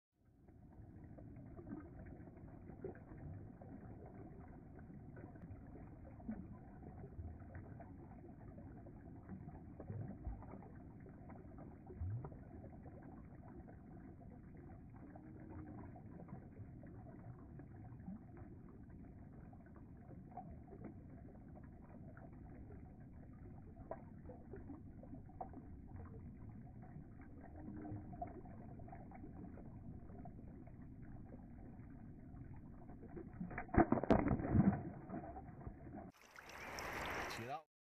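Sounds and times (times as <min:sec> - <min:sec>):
water splashes: 0:00.6 - 0:37.7.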